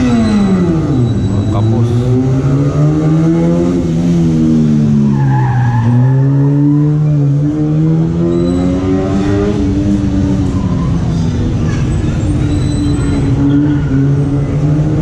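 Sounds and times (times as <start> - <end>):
tire squeal: 0.0 - 3.5, 5.0 - 9.7, 10.4 - 14.8
car engine revving hard: 0.0 - 10.6.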